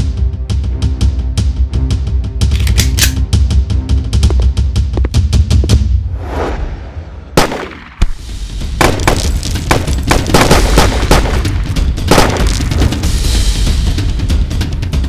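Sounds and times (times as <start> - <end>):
single gunshots: 7.4 - 12.9
rapid gunfire bursts: 8.8 - 13.1.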